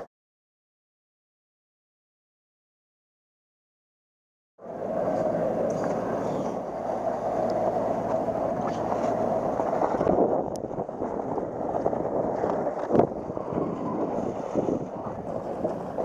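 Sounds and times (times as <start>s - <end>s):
wind buffeting microphone: 4.6s - 16.0s.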